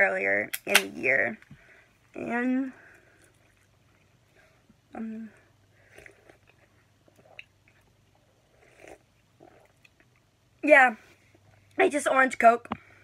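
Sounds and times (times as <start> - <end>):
sipping and swallowing: 5.9 - 10.3.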